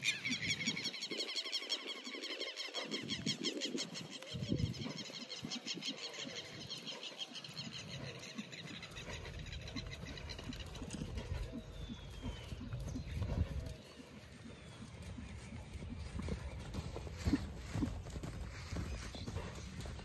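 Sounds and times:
horse hooves thudding on sand: 9.0 - 20.0.

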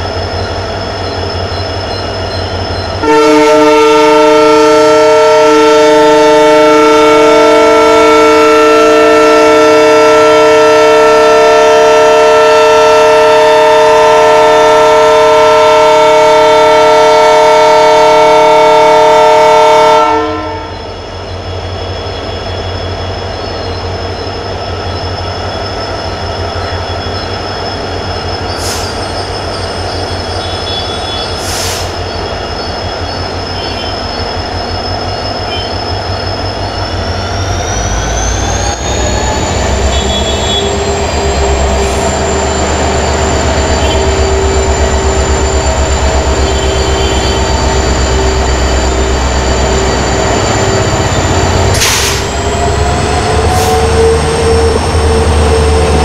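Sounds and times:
locomotive air horn blast: 3.0 - 20.8, 30.4 - 32.0, 39.8 - 42.1, 43.7 - 45.3, 45.9 - 49.2, 50.9 - 52.5, 53.5 - 55.7
high squeak: 20.7 - 56.0.

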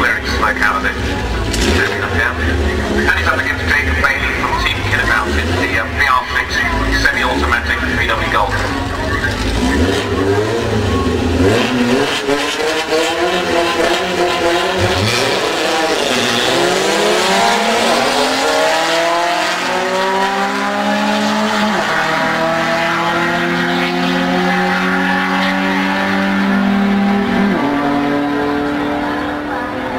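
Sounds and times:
gear changes: 0.0 - 29.2
racing car engines accelerating: 0.0 - 29.9.

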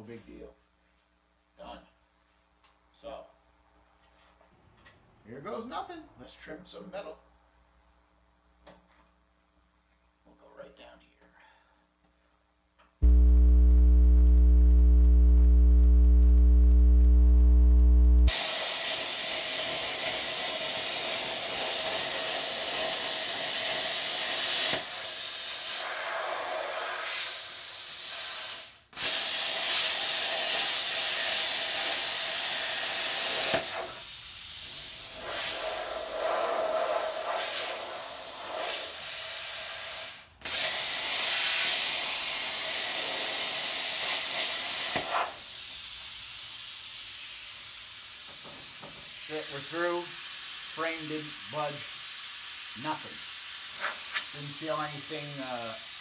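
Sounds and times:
plasma cutter hum: 13.0 - 19.2
plasma cutter hissing: 32.6 - 42.4, 48.7 - 56.0.

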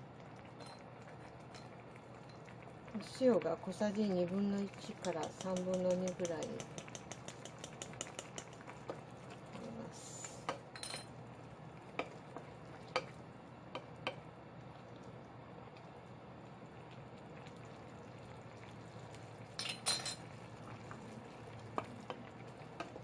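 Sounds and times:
broth bubbling in a pot: 0.0 - 23.0
spoon and utensils clicking: 5.0 - 8.6.

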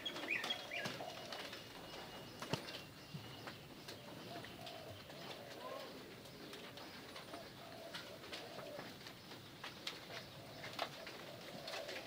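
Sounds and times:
doves cooing: 0.0 - 12.0.

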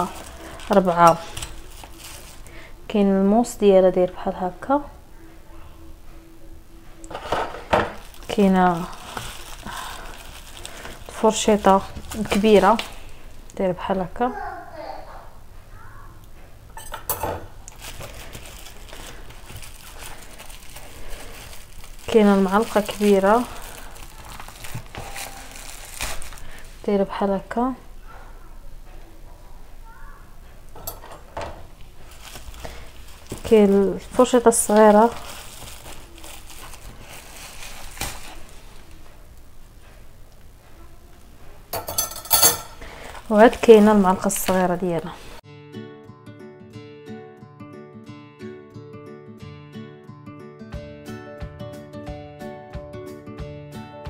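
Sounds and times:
packaging rustle: 0.0 - 2.7, 7.1 - 13.3, 17.7 - 26.8, 31.7 - 39.0
metal cutlery clinking: 16.8 - 17.6, 30.8 - 31.3, 41.8 - 42.9.

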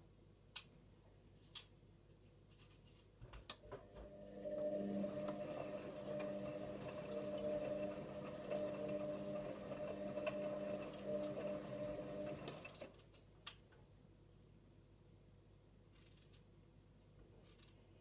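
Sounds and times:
washing machine motor humming: 3.7 - 13.0.

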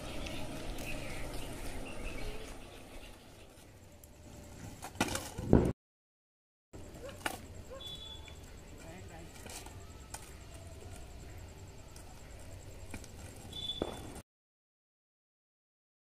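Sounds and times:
skateboard wheels rolling on asphalt: 0.0 - 5.7, 8.2 - 14.2
skateboard clattering on road: 4.5 - 5.7.

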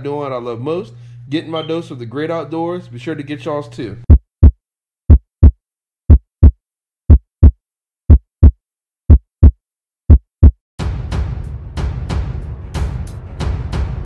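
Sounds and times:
heartbeat thumps: 4.0 - 10.6
music: 10.8 - 14.0.

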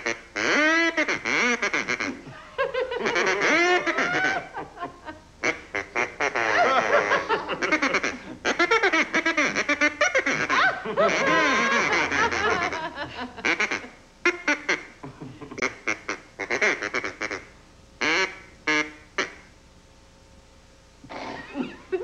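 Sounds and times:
duck call quacks and honks: 0.0 - 2.3, 2.9 - 4.6, 5.4 - 15.0, 15.6 - 19.5.

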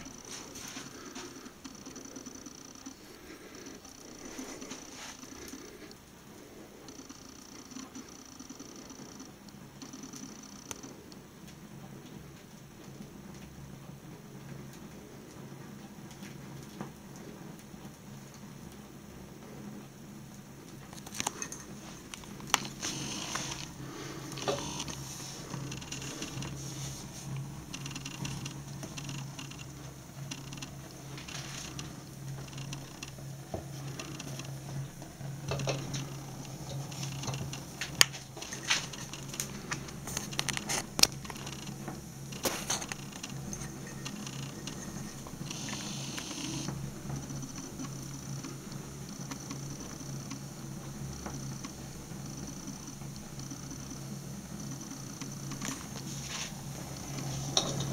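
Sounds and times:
flames crackling and popping: 0.0 - 57.9
steady low hum: 0.0 - 57.9.

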